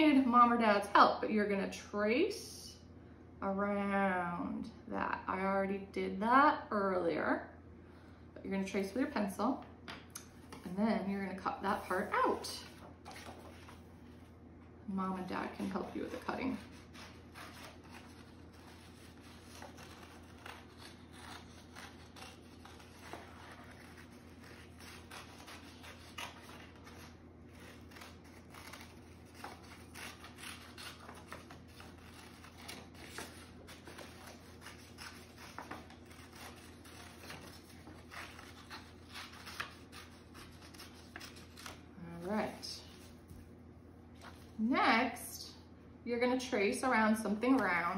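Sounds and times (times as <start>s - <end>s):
paper rustling: 11.4s - 14.3s, 15.4s - 43.4s
scissors snipping paper: 15.6s - 41.8s.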